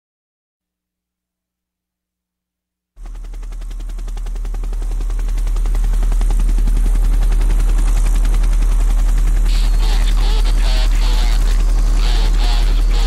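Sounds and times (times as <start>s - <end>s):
fast rattling pulse: 3.0s - 13.0s.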